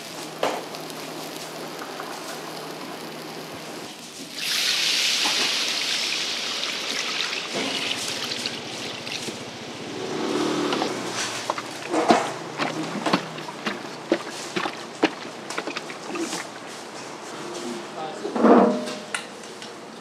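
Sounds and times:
loud steam hiss: 0:00.0 - 0:11.4
buns sizzling in a frying pan: 0:00.0 - 0:12.6
water poured into hot pan: 0:04.0 - 0:16.0.

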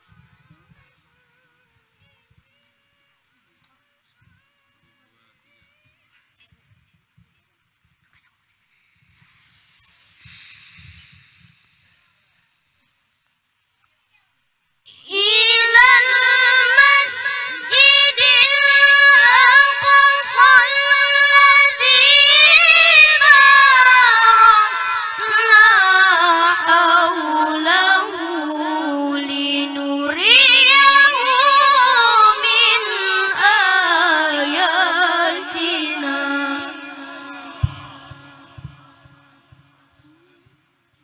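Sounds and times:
boy reciting melodically into a microphone: 0:14.9 - 0:40.6.

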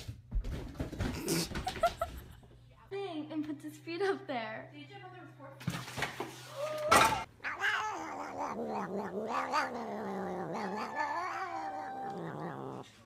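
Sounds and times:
cat yowling: 0:07.1 - 0:12.9.

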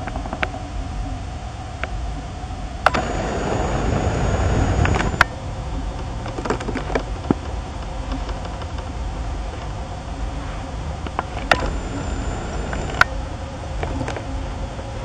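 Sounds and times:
camera zoom motor whine: 0:02.8 - 0:05.3, 0:11.5 - 0:13.2
steady low rumble: 0:02.8 - 0:05.3, 0:11.5 - 0:13.1.

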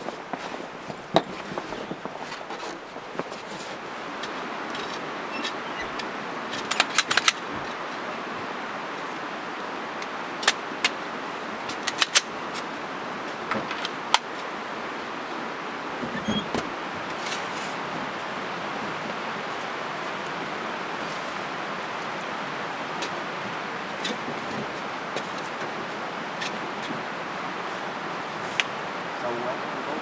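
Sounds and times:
steady background hiss: 0:00.0 - 0:30.0
sharp clicks and light clacks: 0:04.2 - 0:07.8, 0:11.7 - 0:12.7.

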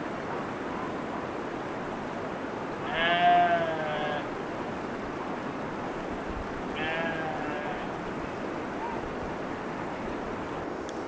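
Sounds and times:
goat bleating: 0:02.8 - 0:04.3, 0:06.8 - 0:08.0.

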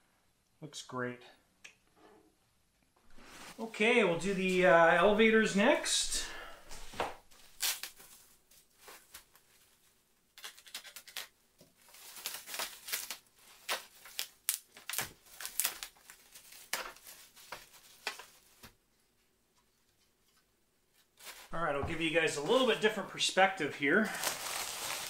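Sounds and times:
plastic packaging crinkling: 0:10.4 - 0:18.7, 0:24.0 - 0:25.0.

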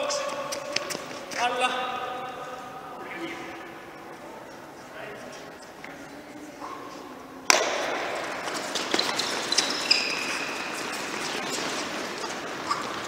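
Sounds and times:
sneaker squeaks: 0:00.0 - 0:01.4, 0:08.3 - 0:13.0
footsteps on hard court: 0:00.2 - 0:01.5, 0:07.6 - 0:13.0.

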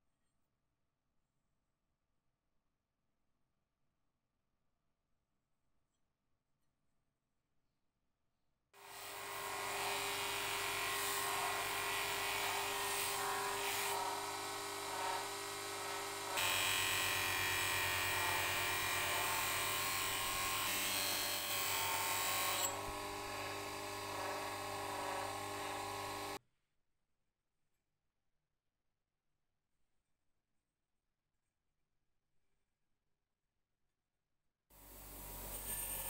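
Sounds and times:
grinding wheel motor whine: 0:08.8 - 0:26.4.

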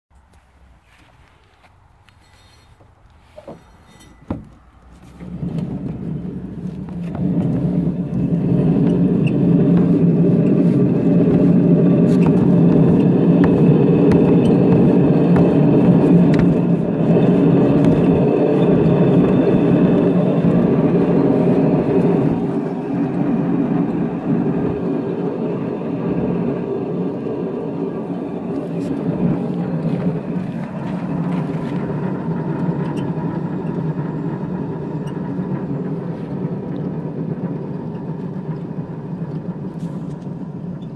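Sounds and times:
potter's wheel whirring: 0:02.0 - 0:40.9
knock: 0:12.2 - 0:15.6, 0:16.2 - 0:16.7.

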